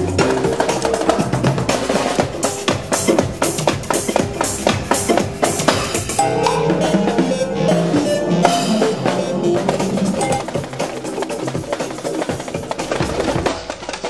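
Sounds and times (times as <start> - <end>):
drum kit playing fast groove: 0.1 - 13.7
held pitched notes: 6.2 - 11.2.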